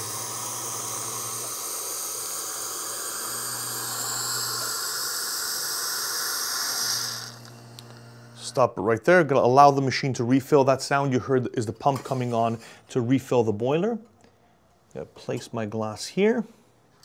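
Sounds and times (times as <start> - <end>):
hot water hissing into a glass: 0.0 - 7.6.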